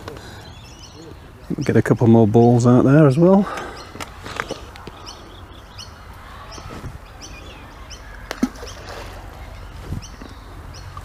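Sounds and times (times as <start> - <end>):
bird chirping: 0.2 - 11.0
ball plopping into water: 8.3 - 9.0.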